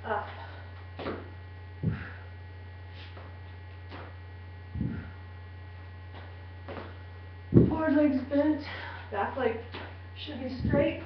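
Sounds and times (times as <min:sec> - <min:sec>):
electrical mains hum: 0:00.0 - 0:11.0
low thuds: 0:01.0 - 0:02.2, 0:04.0 - 0:05.1, 0:06.6 - 0:08.0, 0:10.6 - 0:11.0.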